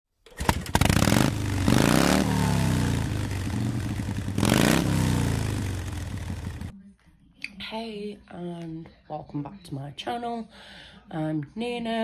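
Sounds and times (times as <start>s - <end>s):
motorcycle engine revving and idling: 0.4s - 6.7s.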